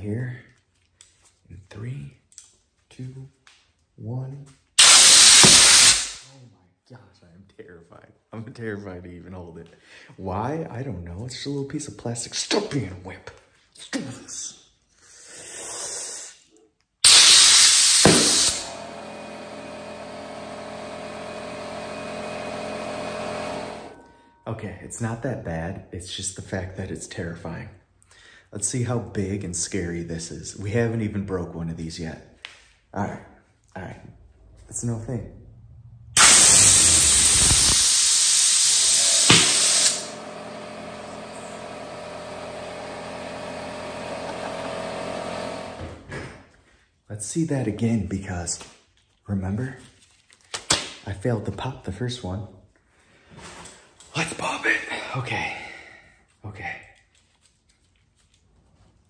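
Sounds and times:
air compressor humming: 0:04.8 - 0:06.3, 0:17.0 - 0:24.2, 0:36.2 - 0:46.1
compressed air hissing: 0:04.8 - 0:06.3, 0:17.0 - 0:18.8, 0:36.2 - 0:40.2
sharp snap: 0:17.1 - 0:18.7, 0:39.0 - 0:40.1, 0:50.5 - 0:51.0.

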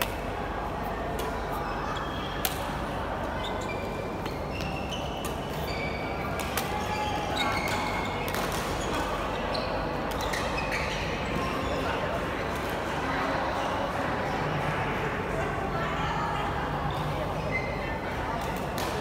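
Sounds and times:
shoes squeaking on floor: 0:03.4 - 0:11.8
rackets striking shuttlecock: 0:05.2 - 0:06.8.

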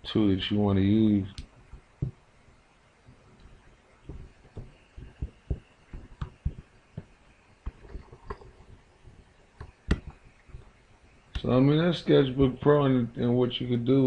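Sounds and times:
drawing tablet taps and clicks: 0:01.4 - 0:02.2, 0:03.4 - 0:11.4.

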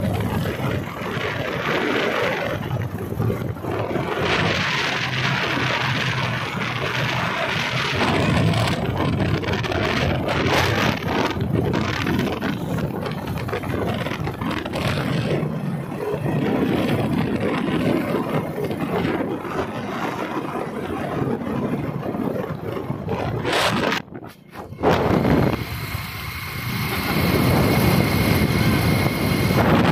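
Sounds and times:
wind buffeting microphone: 0:00.0 - 0:29.9
vehicle engine running: 0:23.1 - 0:29.9.

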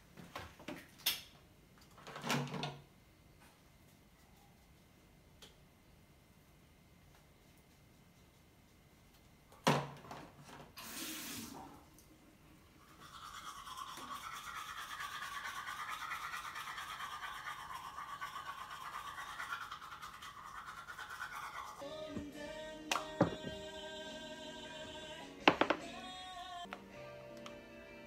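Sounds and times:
toothbrush scrubbing teeth: 0:12.8 - 0:22.2.

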